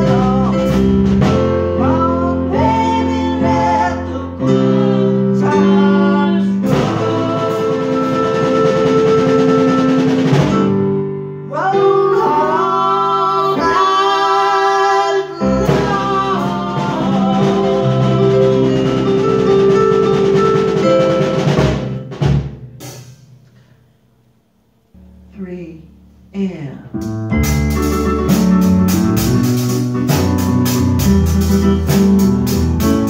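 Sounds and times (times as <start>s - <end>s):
woman singing: 0.0s - 0.8s, 1.8s - 9.2s, 11.5s - 19.1s
drum kit: 0.0s - 11.2s, 13.4s - 24.0s, 26.9s - 33.0s
electronic keyboards: 15.3s - 22.2s, 27.0s - 33.0s.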